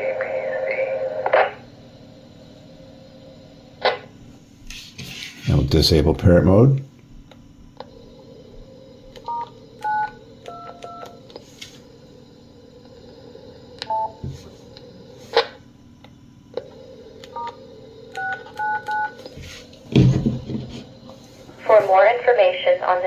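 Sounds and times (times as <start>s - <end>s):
radio background hiss: 0.0s - 1.9s, 19.2s - 23.0s.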